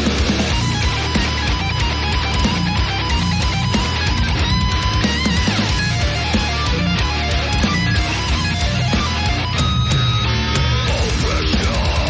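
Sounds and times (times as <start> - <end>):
thrash metal song: 0.0 - 12.0.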